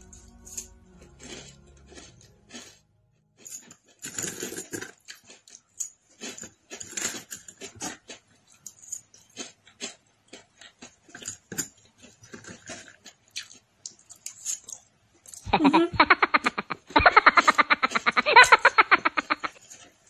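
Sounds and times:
chewing crispy food: 0.0s - 15.5s, 16.2s - 20.0s.

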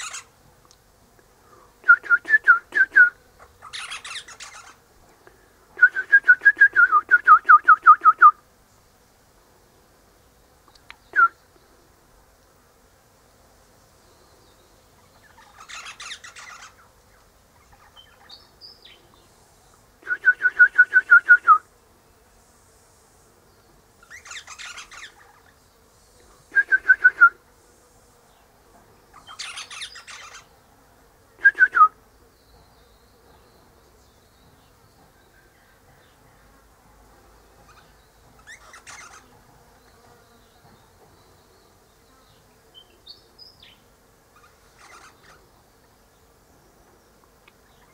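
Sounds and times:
parrot piping calls: 0.0s - 0.3s, 3.4s - 4.8s, 15.2s - 16.9s, 24.0s - 25.5s, 29.1s - 30.5s, 37.7s - 39.3s, 44.4s - 45.4s
parrot scratchy chatter: 0.0s - 0.3s, 3.4s - 4.8s, 15.3s - 16.9s, 24.0s - 25.5s, 29.1s - 30.5s, 37.7s - 39.3s, 44.4s - 45.4s.

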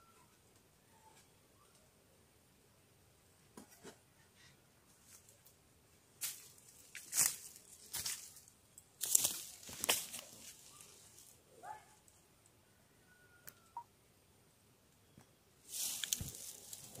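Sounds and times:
rustling through leaves: 6.2s - 11.4s, 15.6s - 17.0s.

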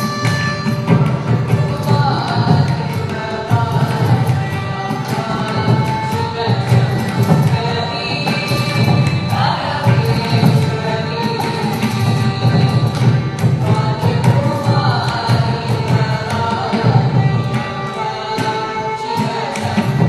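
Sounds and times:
percussion strokes: 0.0s - 20.0s
violin accompaniment: 0.0s - 20.0s
voices singing: 0.0s - 20.0s.

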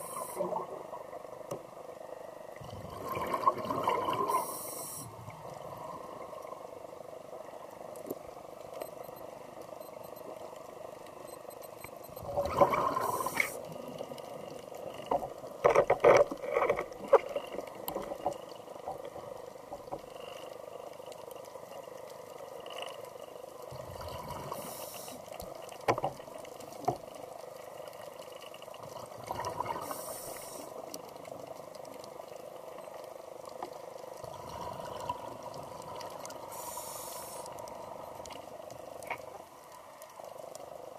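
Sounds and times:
low underwater hum: 0.0s - 40.9s
diver breathing through regulator: 36.5s - 37.5s.

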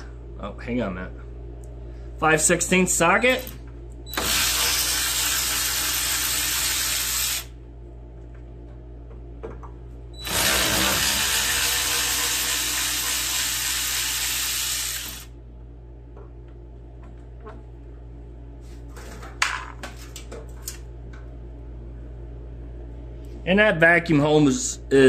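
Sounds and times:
power ratchet spinning: 4.1s - 7.5s, 10.2s - 15.3s.

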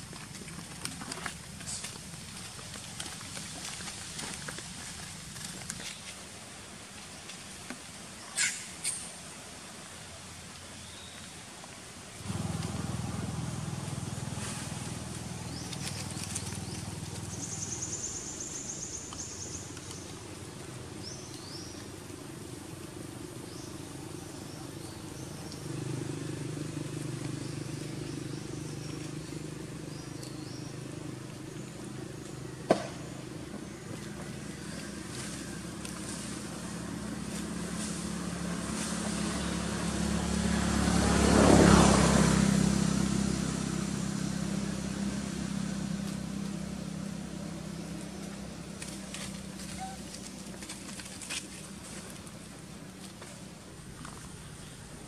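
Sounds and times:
motor vehicle passing: 12.2s - 55.0s.

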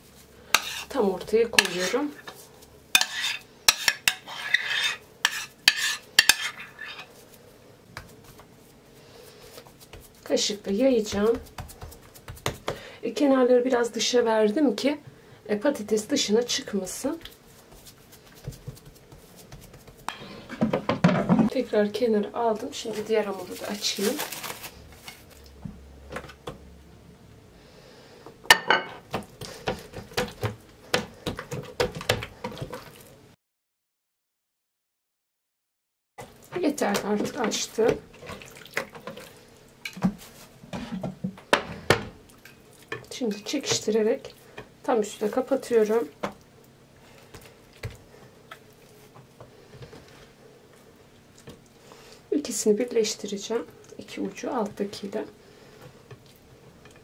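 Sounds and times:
spoon scraping glass bowl: 1.6s - 2.2s, 3.0s - 7.1s
hands patting dough on wood: 9.6s - 12.8s, 17.2s - 20.1s.

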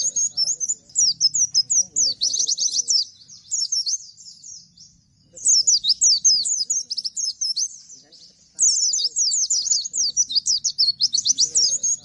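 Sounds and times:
small bird singing whistled notes: 0.0s - 12.0s.

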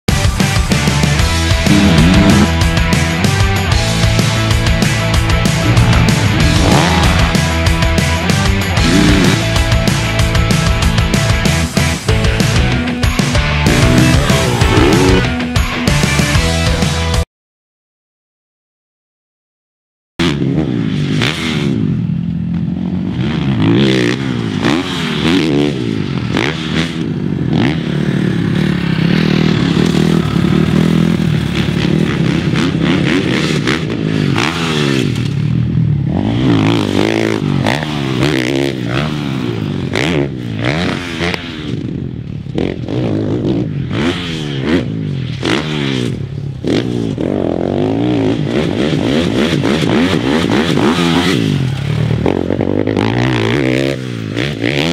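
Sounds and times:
motorcycle engine revving: 0.1s - 16.9s, 20.2s - 54.9s
clatter: 28.8s - 35.7s.

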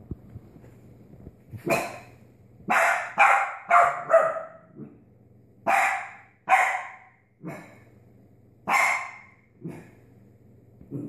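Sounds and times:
puppy barking: 1.6s - 2.1s, 2.7s - 4.9s, 5.6s - 7.8s, 8.7s - 10.0s.

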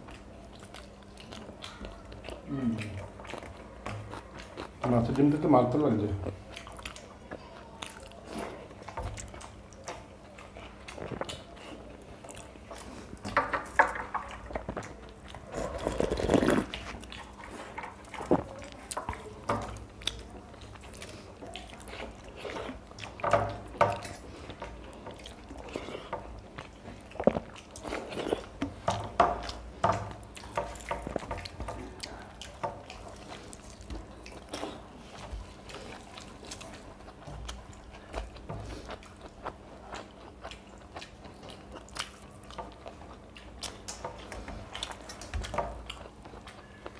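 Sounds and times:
chewing and mouth sounds: 0.0s - 46.9s.

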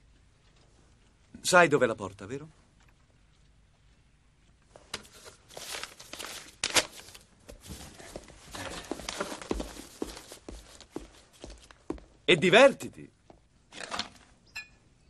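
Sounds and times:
papers rustling: 4.7s - 12.0s
footsteps: 7.4s - 12.7s.

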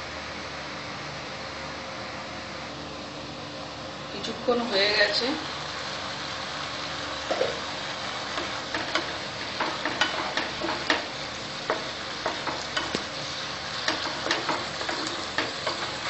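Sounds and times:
curry sizzling: 4.2s - 16.0s
spatula scraping a pan: 8.2s - 13.0s, 13.7s - 16.0s.

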